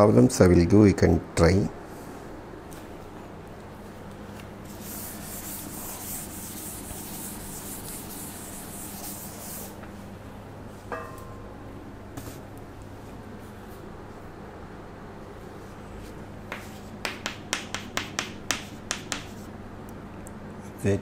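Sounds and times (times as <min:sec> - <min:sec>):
duster rubbing chalkboard: 0:04.6 - 0:09.8
chalk tapping on board: 0:04.8 - 0:09.7, 0:16.5 - 0:19.5.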